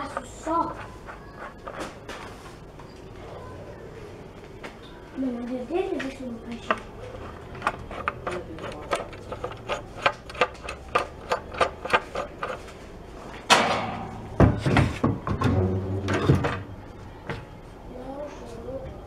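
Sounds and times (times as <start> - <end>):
wood knocking and scraping: 6.6 - 12.7, 14.3 - 17.5.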